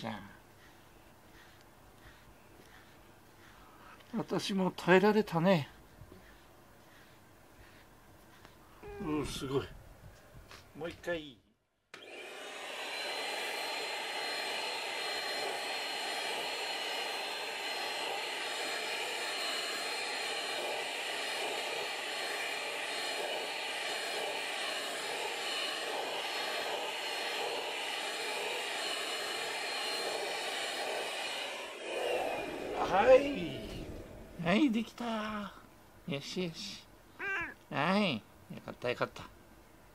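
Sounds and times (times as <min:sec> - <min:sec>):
vacuum cleaner whining: 0:12.0 - 0:35.1.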